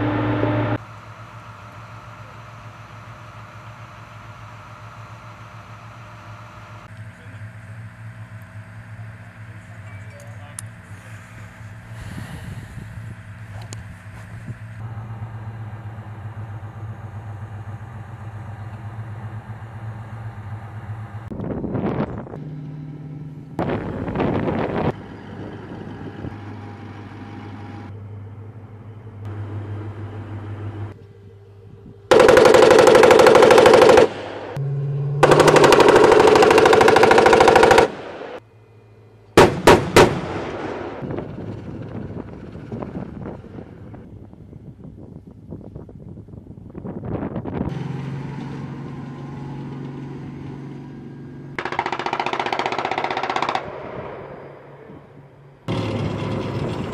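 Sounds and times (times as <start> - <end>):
armored vehicle engine running: 0.0 - 56.9
automatic gunfire bursts: 32.1 - 34.6, 35.2 - 38.4, 51.6 - 54.2
sharp gunshots: 32.1 - 34.6, 39.4 - 41.3, 51.6 - 54.8.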